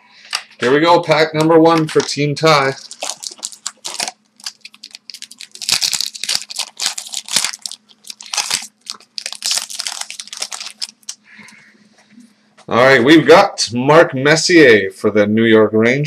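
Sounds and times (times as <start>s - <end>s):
foil wrapper tearing and crinkling: 1.8s - 11.2s.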